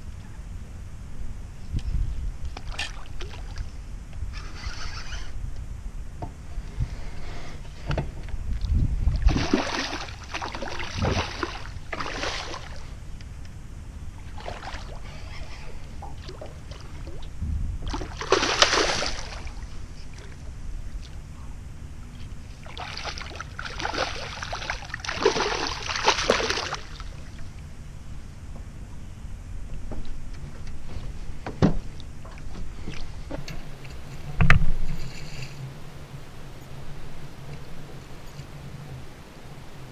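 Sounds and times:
low steady rumble: 0.0 - 39.9
fish splashing at surface: 17.9 - 19.6, 22.7 - 27.0.

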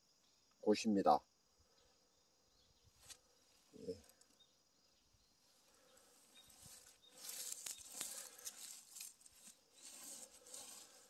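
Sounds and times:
rustle of dry pine needles: 6.0 - 11.0.

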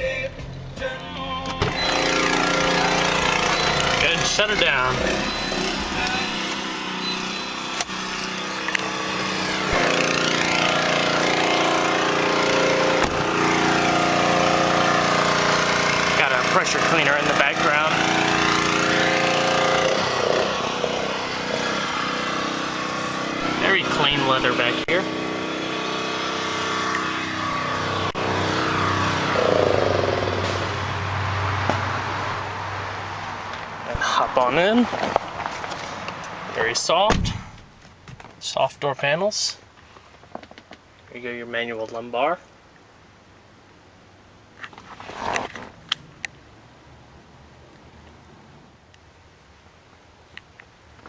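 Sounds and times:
pressure washer running: 1.6 - 32.6
car door thump: 37.1 - 37.7.

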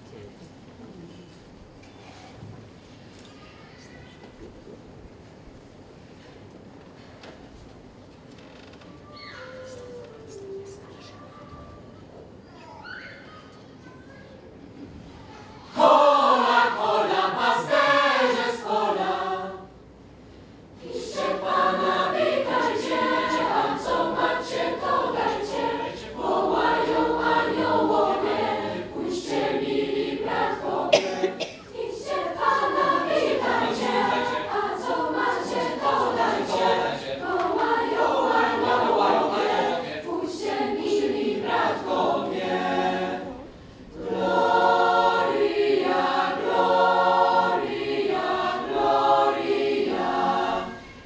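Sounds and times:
choir singing a carol: 15.6 - 51.0.

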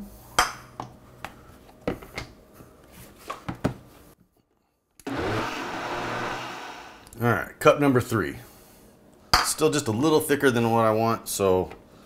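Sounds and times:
blender motor running: 5.0 - 7.1.

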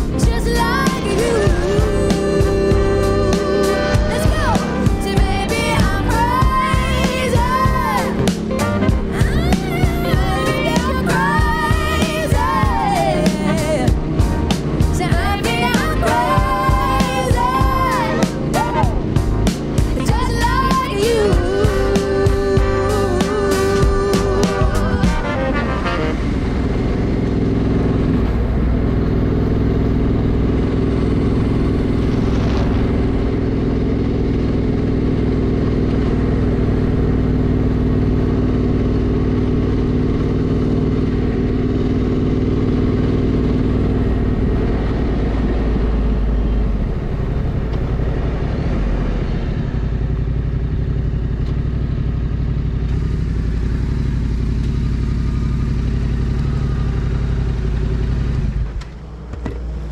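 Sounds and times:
motorcycle engine running: 0.0 - 59.9
wind and road noise: 25.1 - 59.9.

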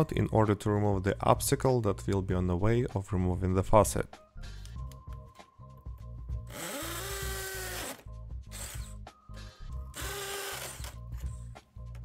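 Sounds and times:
background music: 0.0 - 12.0
drill grinding into mortar: 6.5 - 9.0, 10.0 - 11.0.

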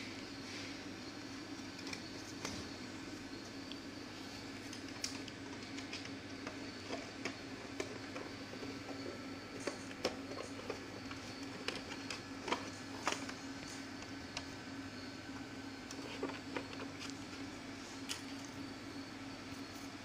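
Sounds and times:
steady low hum: 0.0 - 20.0
film sheet and plastic clicks: 4.6 - 8.3.

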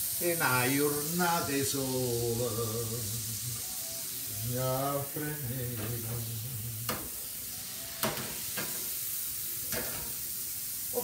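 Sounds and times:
food sizzling in a frying pan: 0.0 - 11.0
man humming: 0.4 - 7.2.

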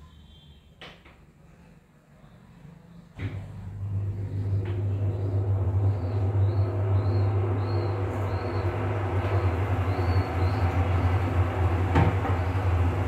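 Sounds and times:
low mechanical rumble and hum: 3.1 - 13.0.

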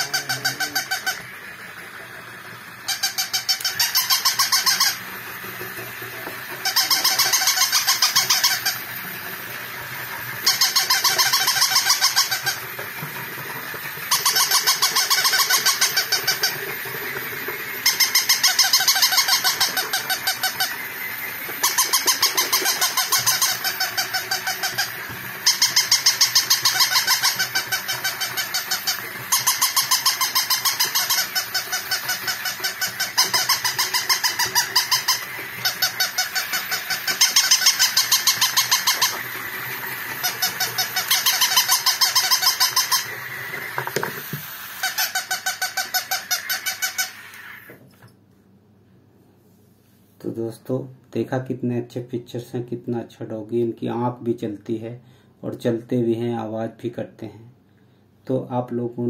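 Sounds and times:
tinny electronic yapping: 0.0 - 1.3
toy walking mechanism whirring: 0.0 - 47.9.

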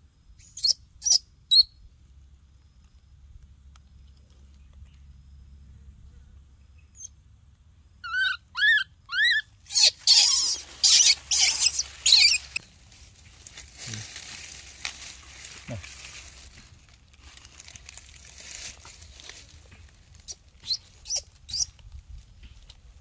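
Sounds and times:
baby monkey squealing: 0.5 - 1.7, 8.0 - 12.6, 20.3 - 21.7
baby monkey screaming: 8.0 - 12.6, 20.3 - 21.7.

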